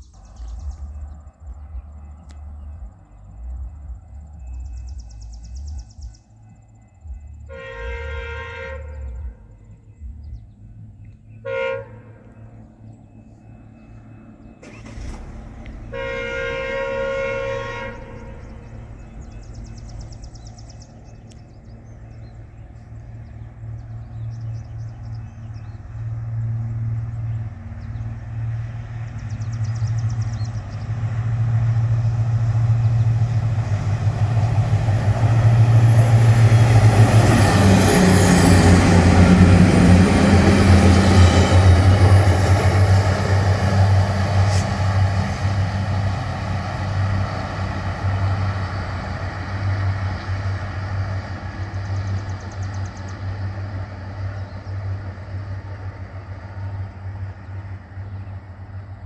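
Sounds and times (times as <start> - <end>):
low train engine drone: 0.0 - 59.0
train horn: 7.1 - 9.9, 11.3 - 13.2, 14.6 - 21.3, 29.1 - 51.1.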